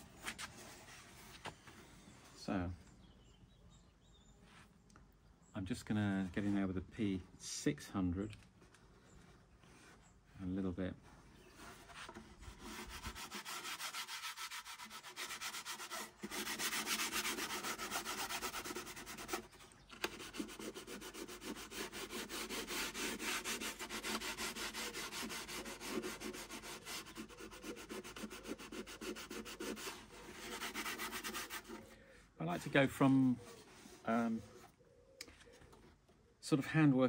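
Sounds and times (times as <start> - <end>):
sandpaper rubbing on wood: 11.6 - 31.8.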